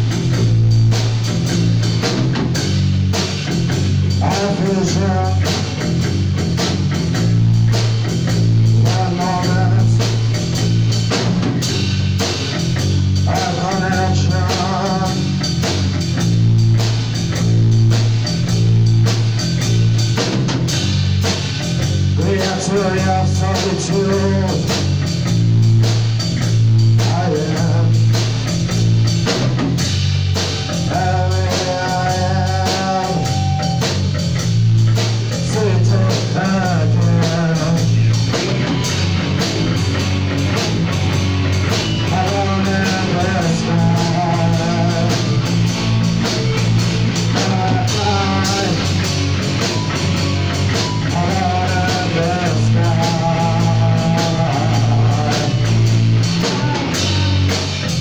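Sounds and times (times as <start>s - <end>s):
live post-punk band playing: 0.0s - 58.0s
person singing: 4.1s - 5.8s, 8.7s - 10.3s, 13.2s - 15.6s, 22.2s - 24.8s, 27.0s - 28.2s, 30.4s - 34.1s, 35.3s - 39.0s, 42.0s - 49.1s, 50.8s - 57.7s.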